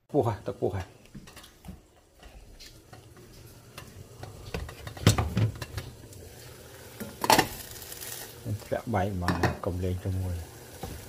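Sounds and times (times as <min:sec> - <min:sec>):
cookware clinking: 0:09.2 - 0:09.7.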